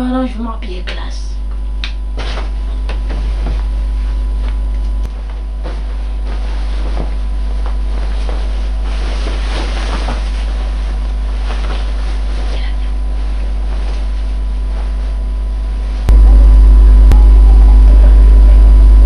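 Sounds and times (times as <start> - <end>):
low microphone rumble: 1.2 - 19.0
cloth rustling: 2.0 - 16.1.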